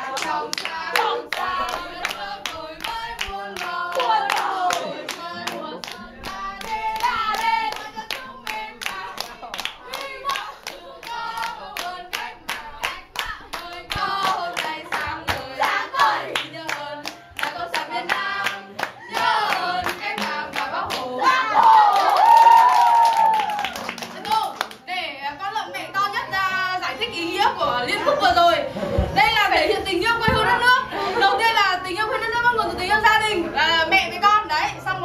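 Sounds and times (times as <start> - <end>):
young voices singing: 0.0 - 24.3, 25.9 - 35.0
rhythmic hand clapping: 0.0 - 24.9.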